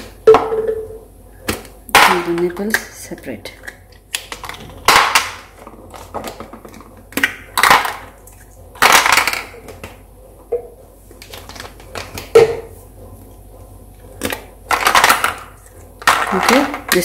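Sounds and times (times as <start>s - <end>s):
plastic parts clattering into tub: 4.2s - 8.1s, 8.8s - 9.9s, 14.2s - 17.0s.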